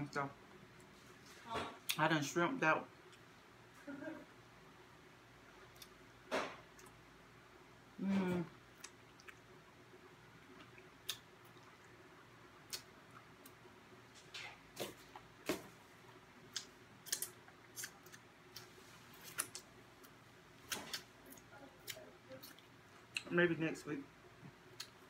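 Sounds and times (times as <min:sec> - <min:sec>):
chewing and lip smacking: 0:08.7 - 0:09.5, 0:10.4 - 0:12.0, 0:16.5 - 0:23.3.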